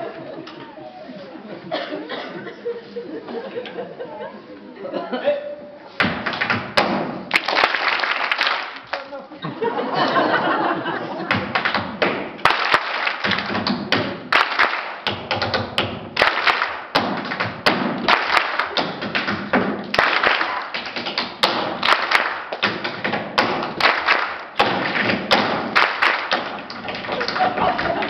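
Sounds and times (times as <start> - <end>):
hand claps and body slaps: 6.0 - 9.2, 11.3 - 28.0.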